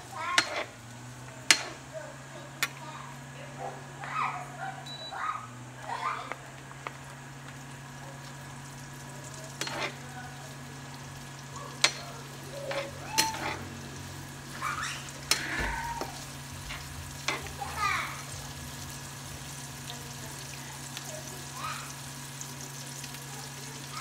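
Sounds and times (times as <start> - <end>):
vegetables sizzling in a frying pan: 0.0 - 24.0
metal spoon striking a pan: 0.4 - 0.6, 1.4 - 1.8, 11.8 - 12.1, 12.7 - 13.6.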